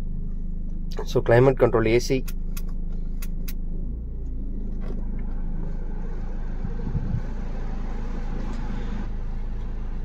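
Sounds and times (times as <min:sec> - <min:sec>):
diesel engine idling: 0:00.0 - 0:10.0.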